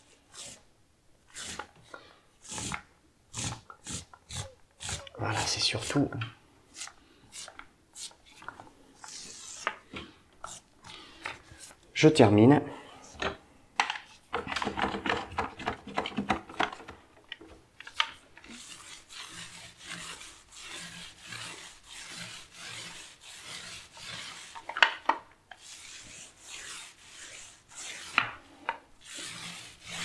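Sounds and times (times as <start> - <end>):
paint roller swishing on wall: 1.3 - 12.0, 17.8 - 30.0
knocks and clatter: 13.8 - 17.0.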